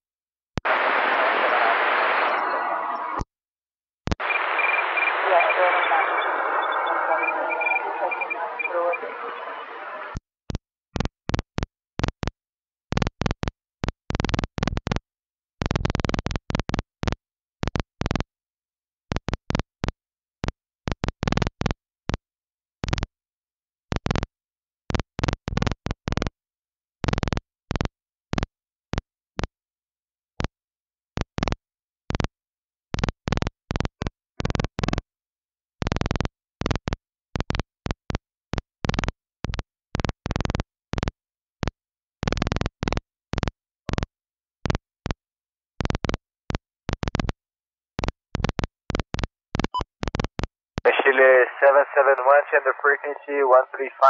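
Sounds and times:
radio static bursts: 0.6 - 3.2, 4.2 - 10.2, 50.9 - 54.0.

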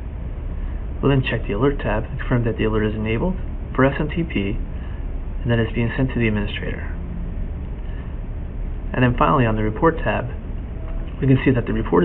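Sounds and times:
low background hum and rumble: 0.0 - 12.0.

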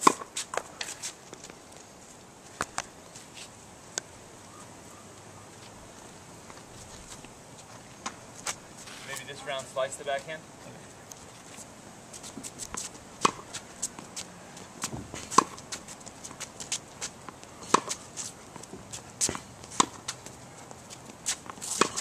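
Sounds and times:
racket striking tennis ball: 0.0 - 0.6, 12.4 - 14.0, 14.9 - 16.4, 17.6 - 20.2, 21.2 - 22.0
footsteps on hard court: 11.2 - 22.0.

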